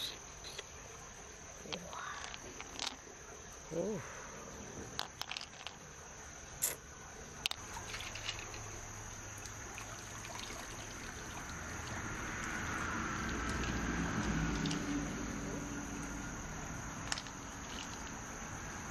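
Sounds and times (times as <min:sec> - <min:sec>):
high insect trill: 0:00.0 - 0:18.9
water swishing over shell: 0:07.4 - 0:18.9.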